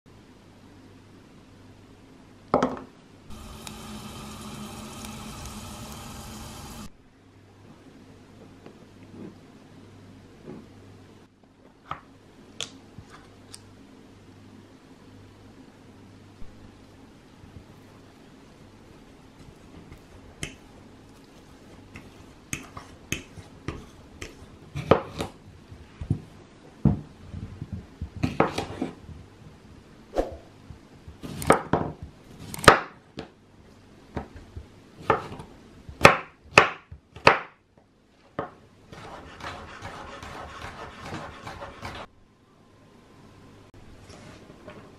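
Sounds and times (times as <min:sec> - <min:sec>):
knife chopping on wooden board: 0:38.9 - 0:42.1.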